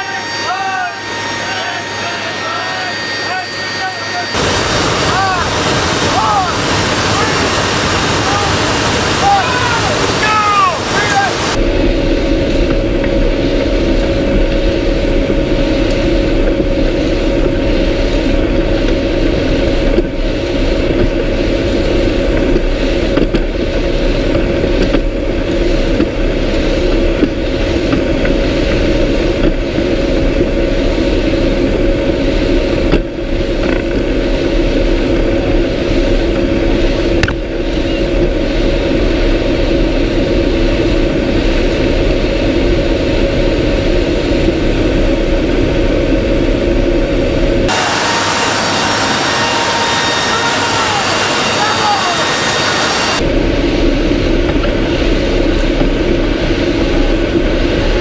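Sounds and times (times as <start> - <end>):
turboprop engines droning: 0.0 - 58.0
wind rushing: 2.9 - 14.3.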